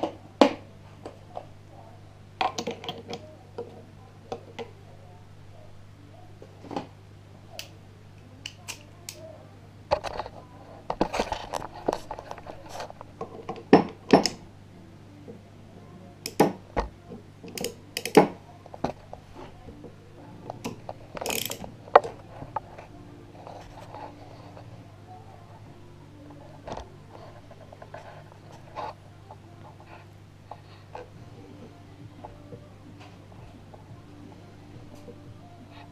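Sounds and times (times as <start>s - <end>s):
steady low hum: 0.0s - 35.9s
metal tools clicking and clinking: 21.2s - 21.7s.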